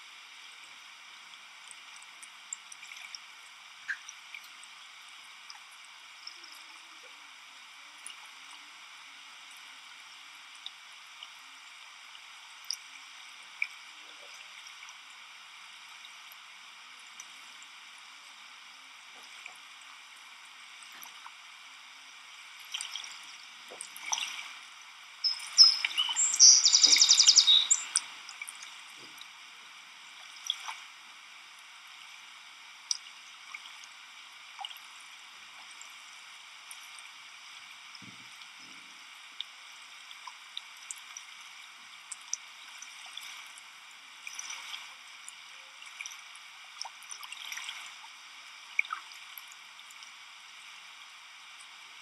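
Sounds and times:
water splashing and dripping: 0:22.6 - 0:29.3.

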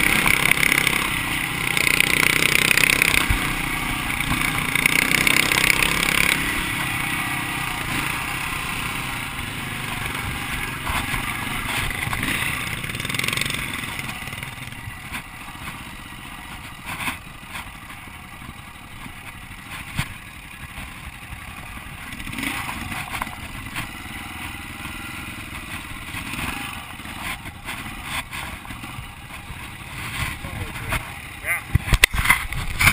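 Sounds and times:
bike clattering over rough ground: 0:00.0 - 0:32.9
dirt bike engine: 0:00.0 - 0:32.9
wind noise: 0:31.7 - 0:32.9.

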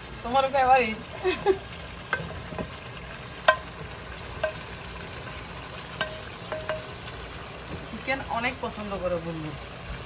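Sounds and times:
hot oil sizzling: 0:00.0 - 0:10.0
cookware clinking: 0:04.4 - 0:04.7, 0:06.0 - 0:07.0.

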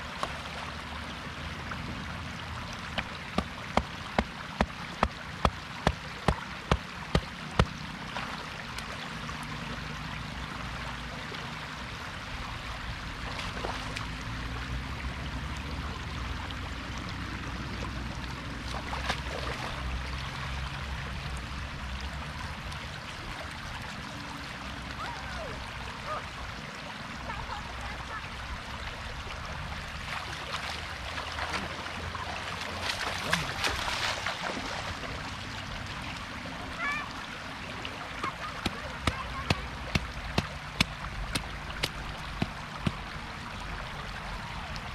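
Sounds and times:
water splashing: 0:00.0 - 0:09.9, 0:13.0 - 0:14.8, 0:15.4 - 0:21.4, 0:29.0 - 0:44.9
floodwater rushing and gurgling: 0:00.0 - 0:44.9.

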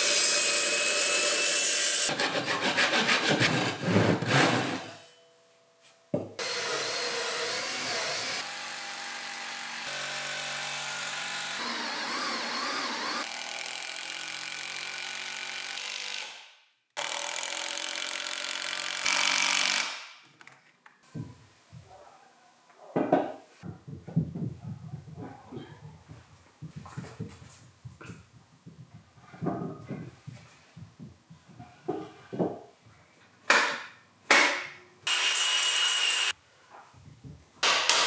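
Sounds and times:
wooden knocks: 0:23.0 - 0:32.7.

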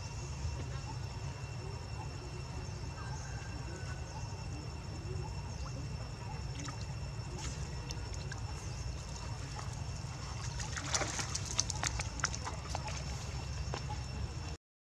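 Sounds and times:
constant high-pitched whine: 0:00.0 - 0:14.6
water splashing from wading animals: 0:06.4 - 0:14.2.

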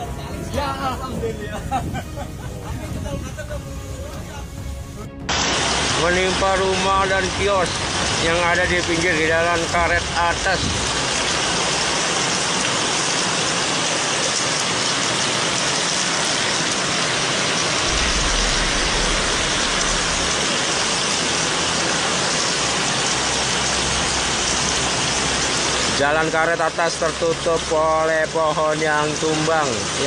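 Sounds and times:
low rumble: 0:00.0 - 0:06.0, 0:17.7 - 0:23.2
heavy rain falling: 0:00.0 - 0:30.0.

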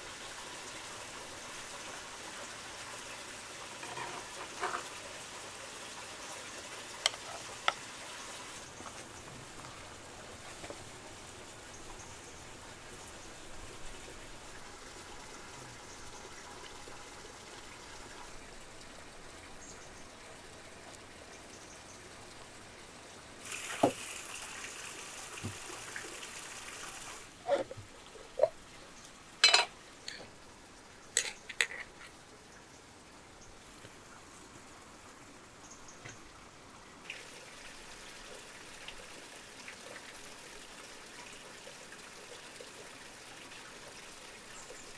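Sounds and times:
faint steady hiss: 0:00.0 - 0:44.9
fork clinking against glass jar: 0:29.4 - 0:30.2.

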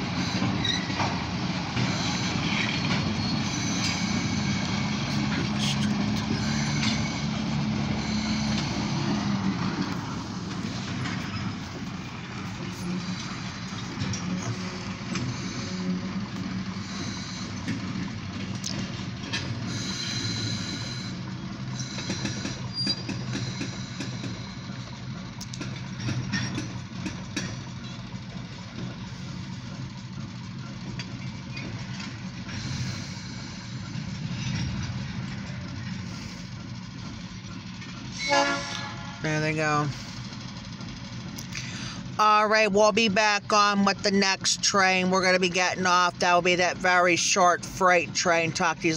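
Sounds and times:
diesel locomotive engine hum: 0:00.0 - 0:48.9.

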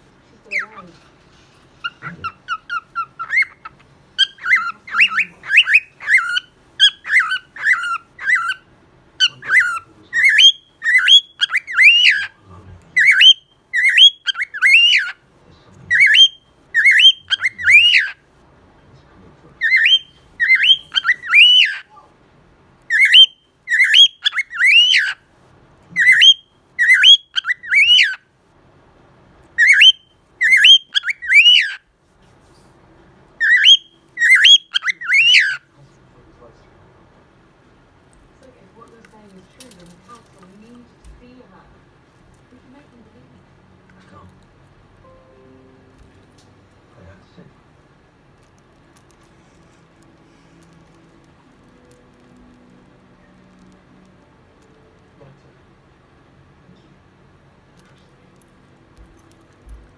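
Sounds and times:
cockatiel whistling chirps: 0:01.8 - 0:08.6, 0:09.2 - 0:12.3, 0:13.0 - 0:15.2, 0:15.9 - 0:18.2, 0:19.6 - 0:21.8, 0:22.9 - 0:25.2, 0:26.0 - 0:28.2, 0:29.6 - 0:31.8, 0:33.4 - 0:35.6.

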